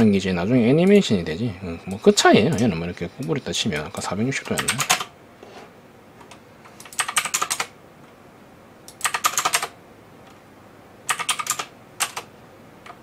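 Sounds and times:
keyboard typing: 0:01.9 - 0:05.1, 0:06.2 - 0:07.7, 0:08.9 - 0:09.7, 0:11.1 - 0:13.0.

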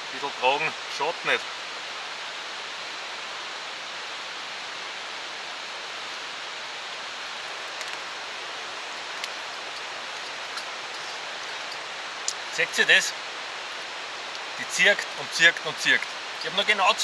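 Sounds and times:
steady rushing outdoor noise: 0:00.0 - 0:17.0.

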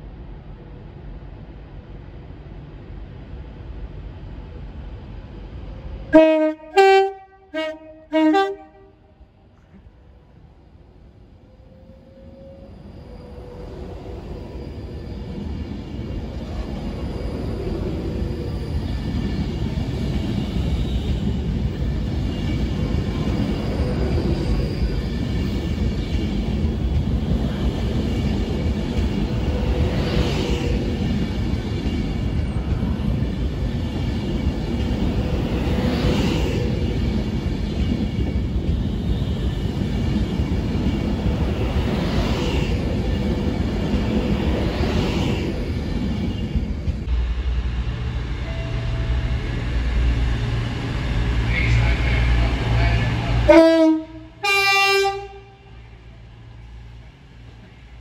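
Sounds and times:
train rumble approaching: 0:00.0 - 0:58.0
two-tone train horn blasts: 0:06.1 - 0:09.2, 0:53.5 - 0:55.8.

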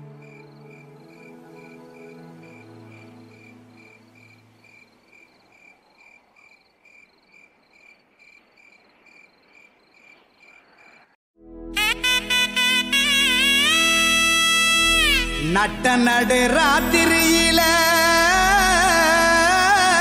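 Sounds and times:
cricket chirping: 0:00.2 - 0:11.2.

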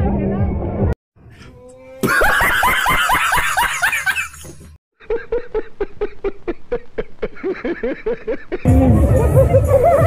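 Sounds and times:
man laughing hard: 0:02.0 - 0:08.8.

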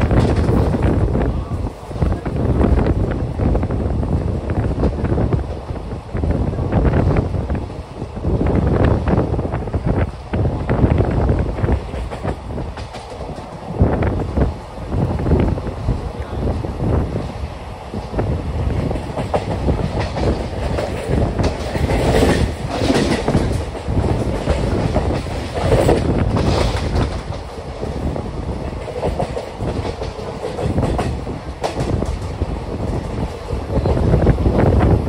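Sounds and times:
train wheels clattering over rail joints: 0:00.0 - 0:01.0, 0:09.9 - 0:14.5, 0:17.2 - 0:35.0.

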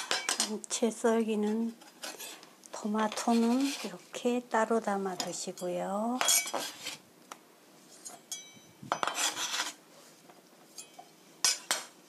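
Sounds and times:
knife scraping plastic cutting board: 0:03.1 - 0:04.0, 0:09.1 - 0:09.8
blade clinking on bowl: 0:08.2 - 0:09.2.

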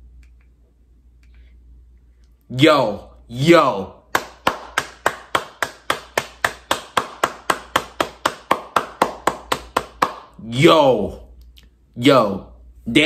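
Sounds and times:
person clapping hands: 0:04.1 - 0:10.4.

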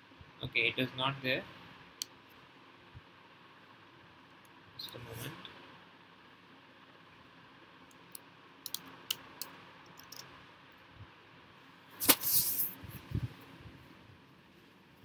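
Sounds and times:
laptop keyboard clicks: 0:08.6 - 0:10.2.

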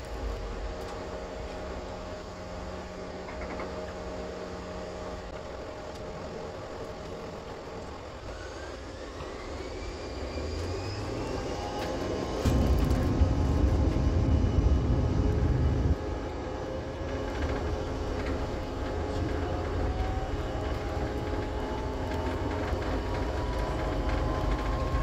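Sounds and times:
jet engines whining and rumbling: 0:00.0 - 0:25.0.

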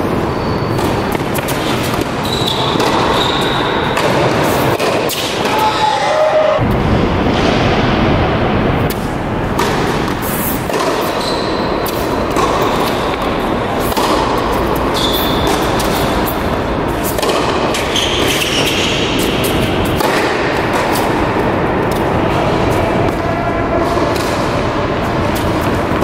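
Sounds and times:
shoe squeaks: 0:00.0 - 0:04.0, 0:11.0 - 0:13.2, 0:14.7 - 0:16.4, 0:17.7 - 0:19.3
steady noisy background: 0:00.0 - 0:26.0
racket striking ball: 0:00.7 - 0:05.8, 0:08.8 - 0:23.2, 0:23.8 - 0:26.0.

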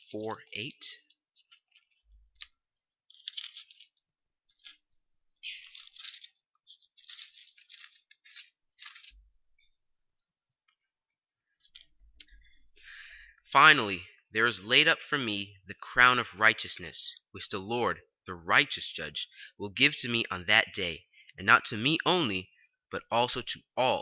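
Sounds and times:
paper pages rustling: 0:00.0 - 0:12.6.

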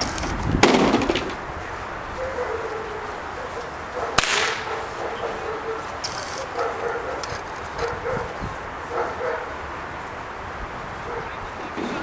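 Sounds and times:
sharp crack: 0:00.0 - 0:01.4, 0:04.2 - 0:04.8.

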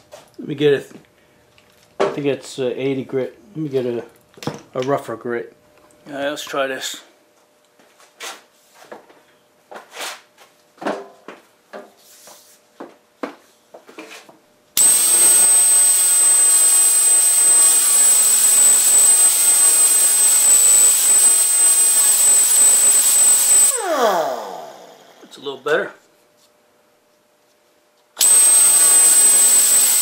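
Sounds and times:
air grinder whining: 0:14.8 - 0:25.5, 0:28.2 - 0:30.0.

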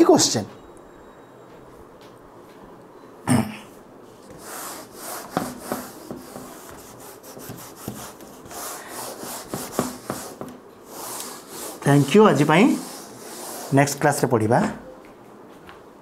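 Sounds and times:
duster rubbing whiteboard: 0:04.2 - 0:14.2.

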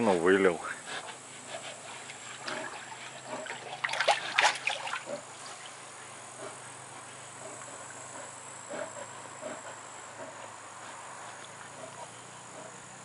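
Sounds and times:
water splashing and sloshing: 0:01.6 - 0:05.9.

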